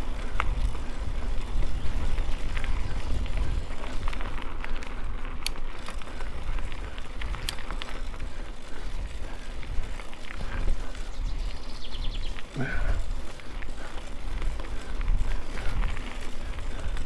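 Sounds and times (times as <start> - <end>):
bike clicks and rattles: 0.0 - 17.0
bike tyre noise: 0.0 - 17.0
wind on microphone: 0.1 - 4.7.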